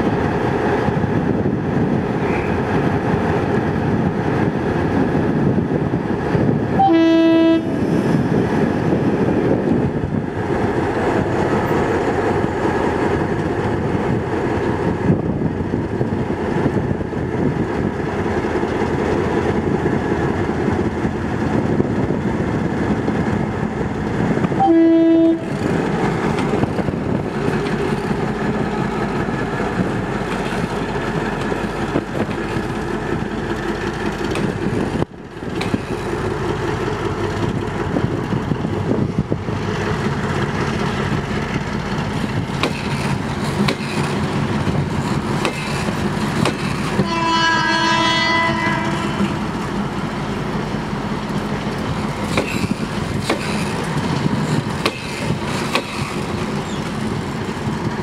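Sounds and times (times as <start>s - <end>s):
diesel locomotive engine under load: 0.0s - 58.0s
locomotive horn blasts: 6.8s - 7.8s, 24.6s - 25.5s, 47.0s - 49.4s.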